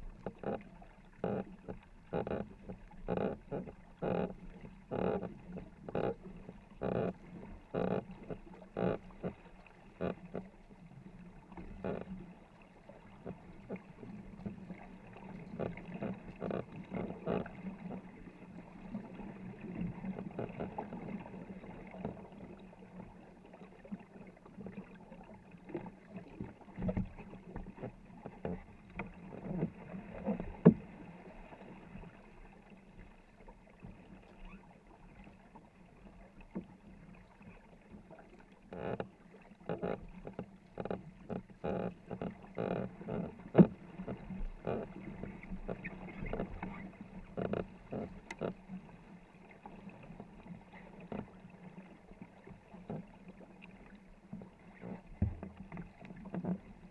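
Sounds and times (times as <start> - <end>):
paddles knocking against hull: 0.0 - 10.5, 11.5 - 12.2, 13.2 - 18.2, 19.7 - 22.3, 25.7 - 31.0, 38.7 - 48.8, 52.7 - 53.2, 54.3 - 56.9
paddles pulling through water: 0.0 - 56.9.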